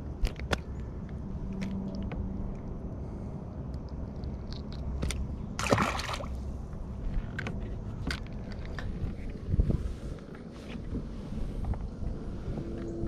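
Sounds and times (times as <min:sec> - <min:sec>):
clicks and rustles of fishing line: 0:03.7 - 0:05.3, 0:07.0 - 0:09.5
fish splashing into water: 0:05.6 - 0:06.4.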